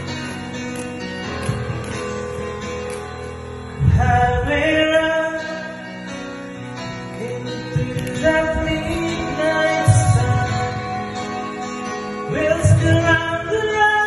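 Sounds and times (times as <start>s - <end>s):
backing track with guitar: 0.0s - 14.0s
man singing into microphone: 3.8s - 14.0s.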